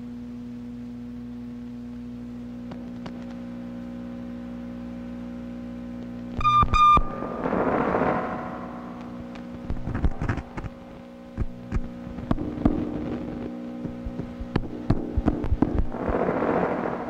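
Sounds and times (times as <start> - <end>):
low droning hum: 0.0 - 17.0
sharp clicks and crackles: 2.7 - 3.4, 6.0 - 17.0
held tones: 6.4 - 12.0.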